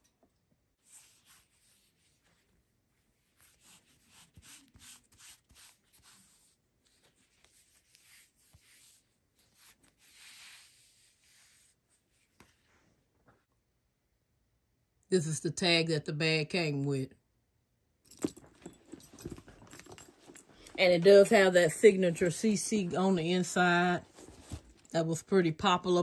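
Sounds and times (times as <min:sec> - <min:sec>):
rustling and clicks of handbag strap: 0:18.1 - 0:22.5, 0:24.0 - 0:25.0.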